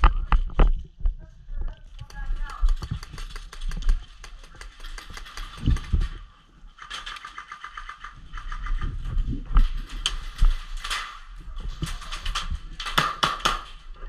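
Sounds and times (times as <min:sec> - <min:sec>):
scattered clicks and scuffs: 0:01.6 - 0:06.2
airsoft guns firing rapidly: 0:02.2 - 0:06.0, 0:12.8 - 0:13.7.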